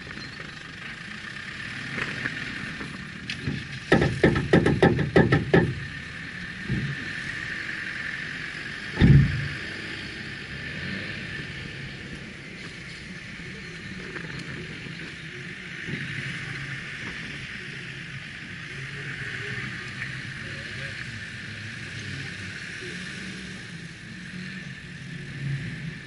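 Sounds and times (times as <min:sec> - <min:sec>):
car engine idling: 0:00.0 - 0:26.0
loud thump: 0:09.0 - 0:09.6.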